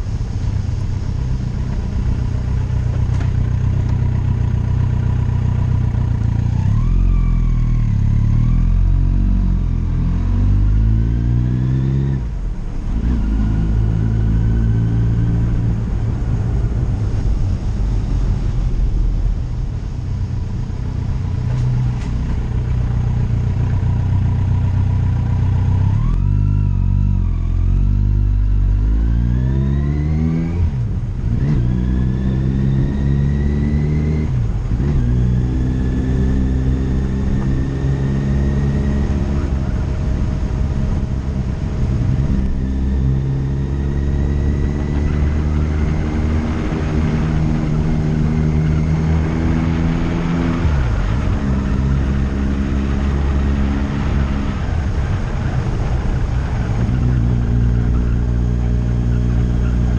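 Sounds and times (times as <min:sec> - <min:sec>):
vehicle engine accelerating through gears: 0:00.0 - 0:59.9
wind rush: 0:15.3 - 0:23.0, 0:36.0 - 0:58.7.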